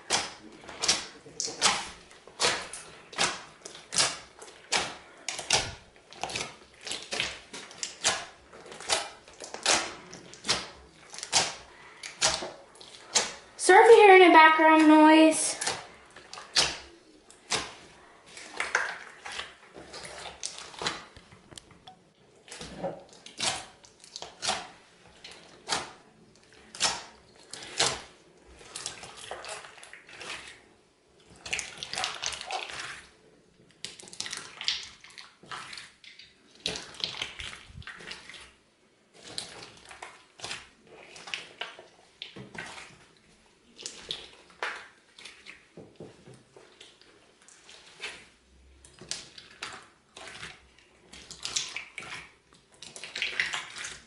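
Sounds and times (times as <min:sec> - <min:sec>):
slime crunching and crackling: 0:00.0 - 0:13.6, 0:46.7 - 0:54.0.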